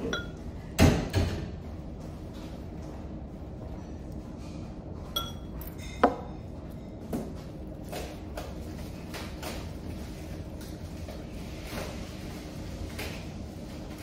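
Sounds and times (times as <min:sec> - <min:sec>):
tableware clinking: 0:00.0 - 0:00.4, 0:05.1 - 0:06.4
steady low hum: 0:00.0 - 0:14.0.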